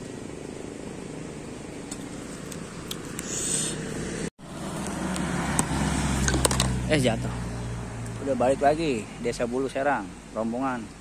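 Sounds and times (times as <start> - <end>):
engine low rumble: 0.0 - 11.0
brief hiss: 3.1 - 3.9.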